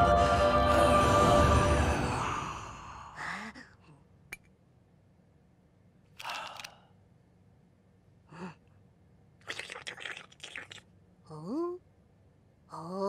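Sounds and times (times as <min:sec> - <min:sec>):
dramatic cartoon music: 0:00.0 - 0:02.7.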